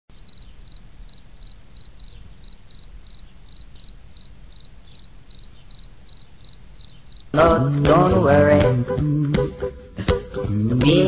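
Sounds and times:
cricket chirping: 0:00.1 - 0:07.4.

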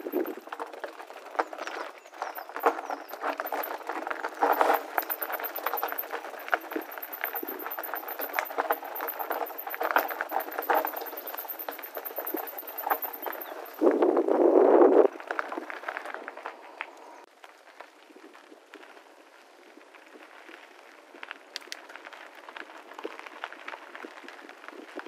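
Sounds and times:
tyres crunching over stones: 0:00.0 - 0:14.1
bike rattling: 0:00.0 - 0:17.2.

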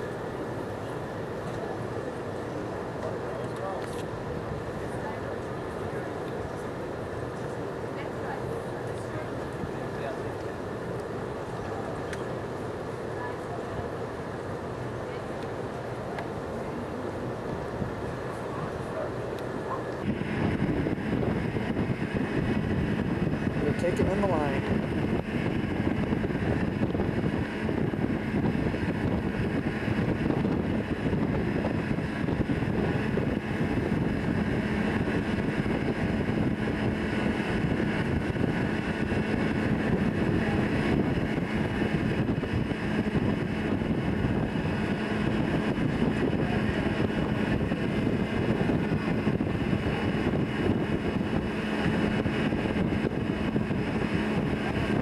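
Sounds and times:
low machinery hum: 0:00.0 - 0:55.0
wind rushing: 0:20.0 - 0:55.0.

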